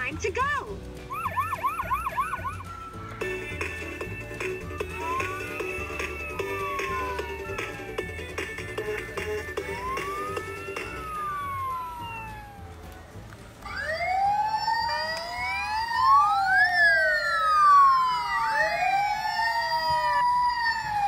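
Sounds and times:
toy sirens wailing: 1.1s - 13.0s, 13.6s - 21.0s.

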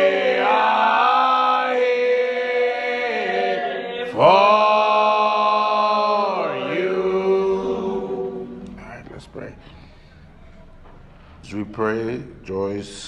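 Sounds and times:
slow worship chorus singing: 0.0s - 10.4s.

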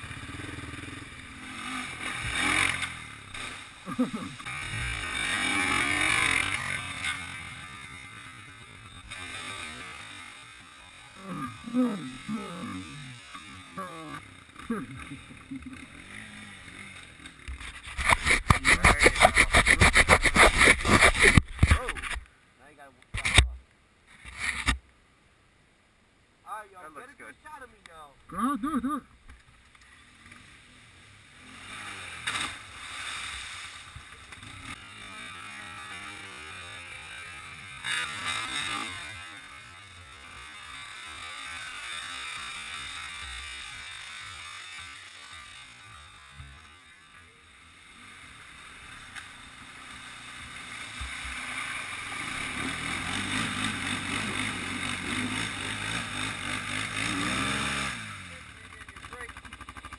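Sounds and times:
quad engine revving: 0.0s - 22.2s, 30.1s - 59.9s
churning through mud: 17.7s - 22.2s.

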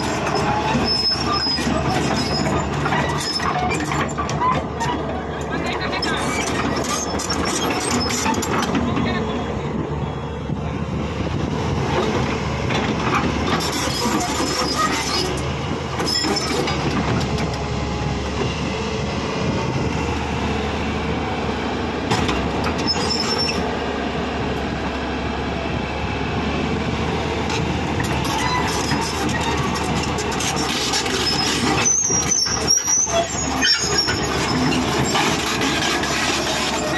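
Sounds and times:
sharp metal squeals: 0.0s - 5.0s, 6.0s - 8.7s, 13.6s - 15.4s, 16.0s - 16.8s, 22.8s - 23.7s, 28.2s - 36.9s
steel tracks clanking: 0.0s - 9.6s, 27.4s - 36.9s
excavator engine running: 0.0s - 36.9s.

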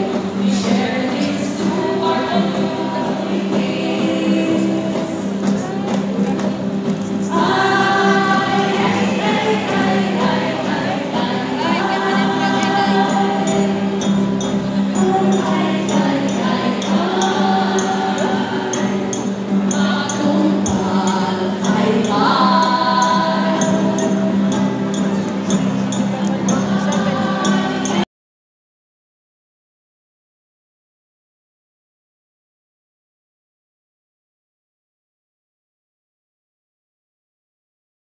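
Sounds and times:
choir singing: 0.0s - 6.0s, 7.2s - 28.1s
musical accompaniment: 0.0s - 28.0s.

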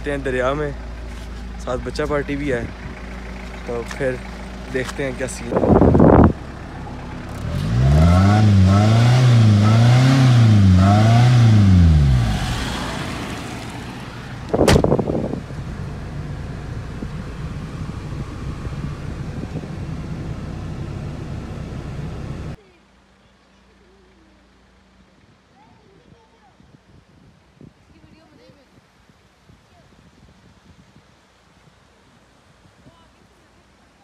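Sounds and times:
car engine and road noise: 0.0s - 26.2s
sharp knock: 14.6s - 15.0s.

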